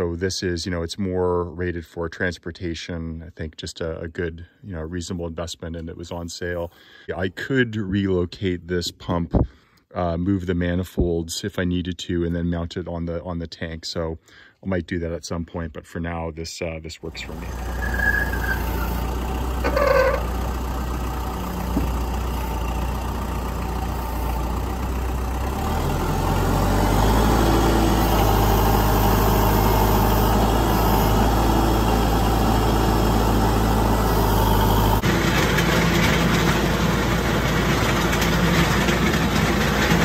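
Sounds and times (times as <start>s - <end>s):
tractor diesel engine running: 17.0s - 40.0s.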